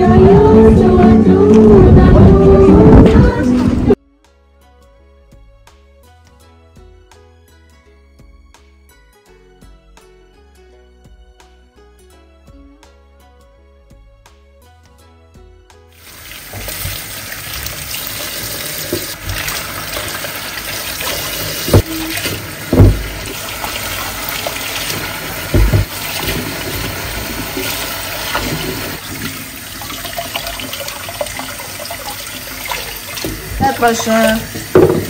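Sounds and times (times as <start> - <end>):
soft music: 0.0 - 35.0
tap water splashing into sink: 16.1 - 35.0
loud thumps: 22.6 - 23.2, 25.5 - 26.0.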